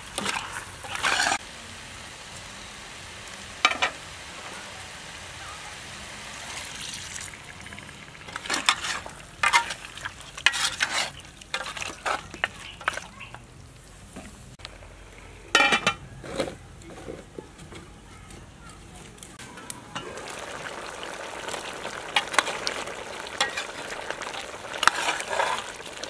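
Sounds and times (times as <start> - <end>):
meat sizzling: 0.0 - 13.2, 19.4 - 26.0
metal spoon scraping pot: 0.2 - 1.4, 8.3 - 12.5.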